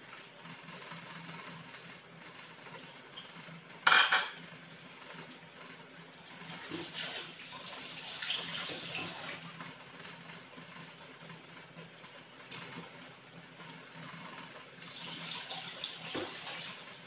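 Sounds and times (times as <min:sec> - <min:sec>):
tap water running into sink: 0:06.2 - 0:09.4, 0:14.8 - 0:17.0.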